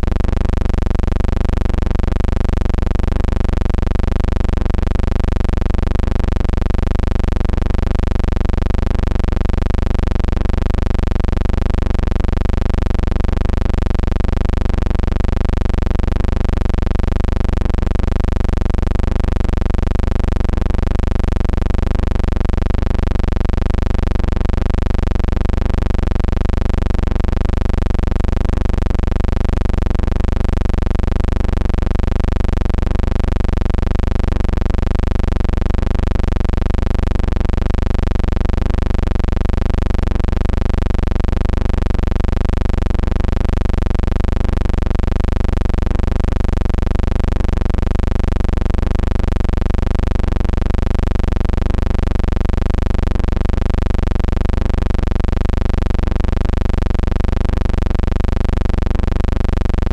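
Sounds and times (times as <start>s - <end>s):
loud low hum: 0.0s - 4.0s, 4.6s - 31.0s.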